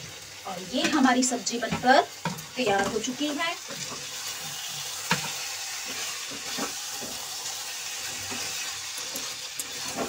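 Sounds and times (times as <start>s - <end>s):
curry sizzling in a pan: 0.0s - 10.0s
wooden spatula scraping: 1.6s - 10.0s.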